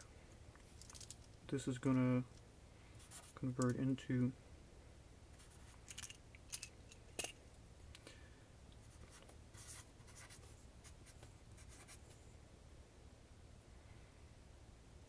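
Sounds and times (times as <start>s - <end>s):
marker scratching on paper: 8.9s - 12.2s.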